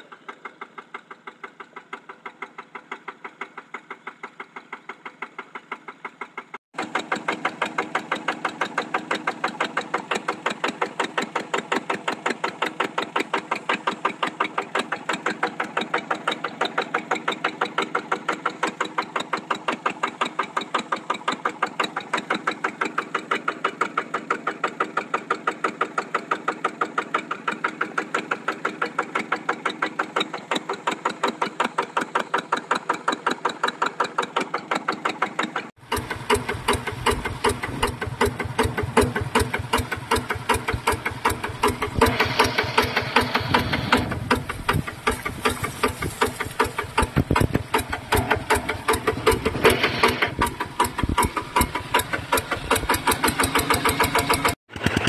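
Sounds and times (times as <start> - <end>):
diesel engine running: 0.0 - 55.0
water pouring from hose: 44.3 - 53.5.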